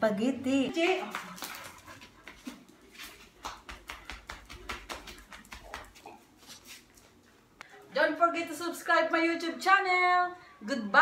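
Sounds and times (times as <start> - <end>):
dogs' claws clicking on tile: 1.0 - 7.1
flip-flop footsteps on tile: 1.1 - 7.2.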